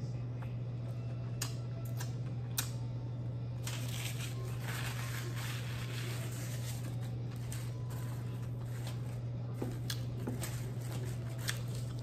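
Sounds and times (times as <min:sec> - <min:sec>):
low hum: 0:00.0 - 0:12.0
paper napkin crinkling: 0:03.6 - 0:12.0.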